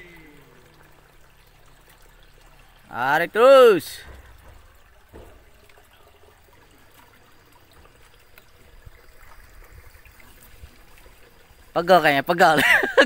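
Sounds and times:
water trickling: 0.0 - 13.0
soft thump: 4.0 - 5.6.

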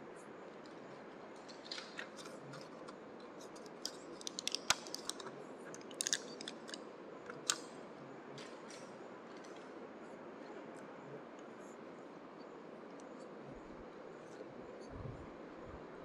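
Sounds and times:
small clicks and crackles: 0.5 - 9.8.

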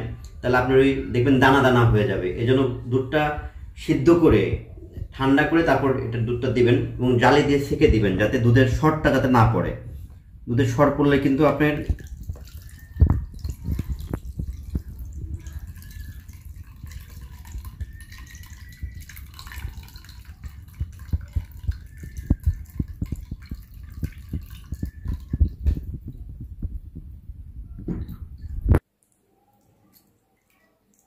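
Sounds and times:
milk pouring through a strainer: 11.1 - 26.8.

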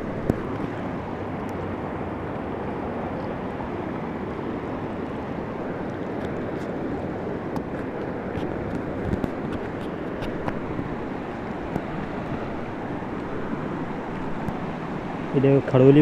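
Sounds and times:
river water rushing over ledge: 0.0 - 16.0.

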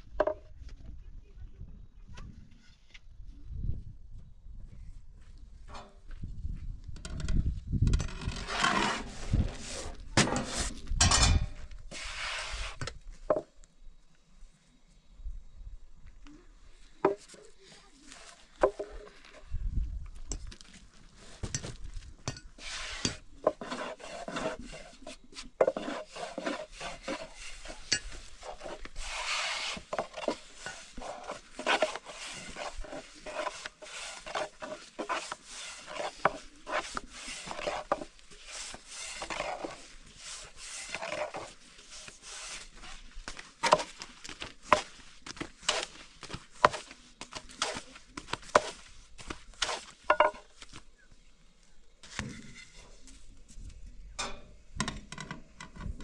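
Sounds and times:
rolling pin rubbing dough: 11.9 - 12.8, 22.6 - 50.0.

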